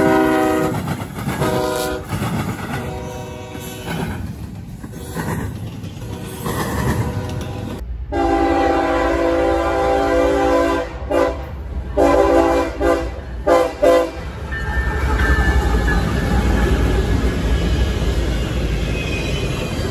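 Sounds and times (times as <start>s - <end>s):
locomotive air horn blasts: 0.0s - 0.8s, 1.4s - 2.1s, 2.8s - 4.0s, 6.0s - 14.2s
freight train rumbling past: 0.0s - 19.9s.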